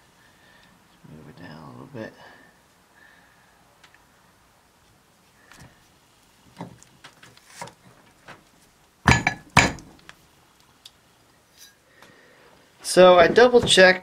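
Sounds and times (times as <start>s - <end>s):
sharp metallic clanks: 9.1s - 9.9s
cast iron pieces knocking: 9.1s - 10.0s.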